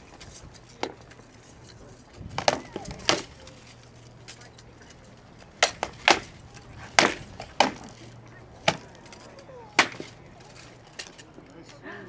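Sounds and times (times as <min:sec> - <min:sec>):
sharp wooden whacks: 0:05.6 - 0:08.0, 0:08.6 - 0:09.0, 0:09.8 - 0:10.2.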